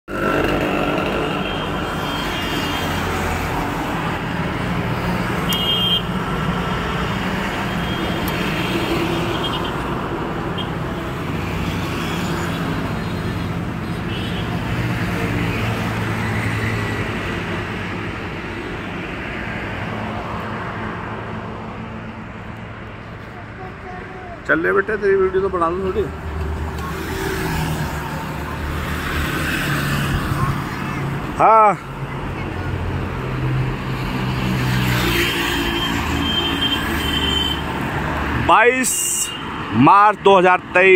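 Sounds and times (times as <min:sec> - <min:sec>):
highway traffic passing: 0:00.0 - 0:40.9.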